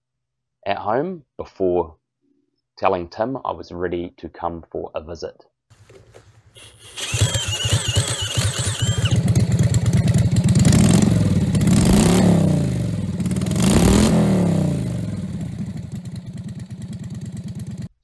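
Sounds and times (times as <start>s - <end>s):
cordless drill cranking engine: 5.8s - 10.6s
v-twin engine revving: 6.6s - 17.9s.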